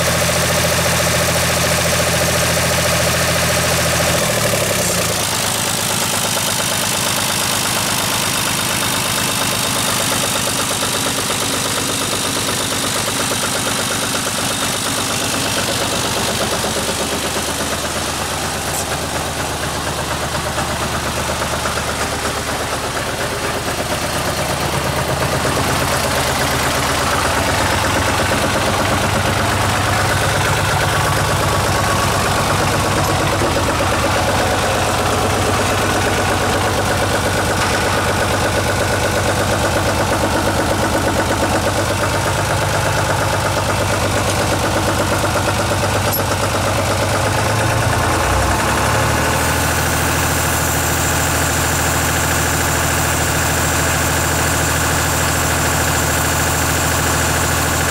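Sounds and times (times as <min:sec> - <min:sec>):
tractor diesel engine idling: 0:00.0 - 0:57.9.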